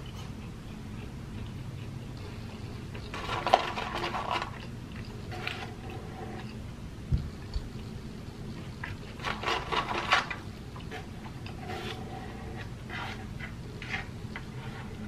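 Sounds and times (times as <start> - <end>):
chewing crispy food: 0.0 - 5.8
food rustling: 0.0 - 6.8, 8.4 - 15.0.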